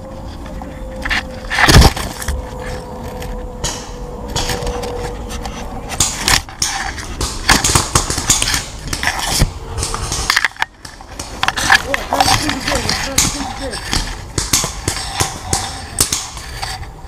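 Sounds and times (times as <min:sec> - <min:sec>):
leaves and twigs rustling: 0:08.2 - 0:16.9.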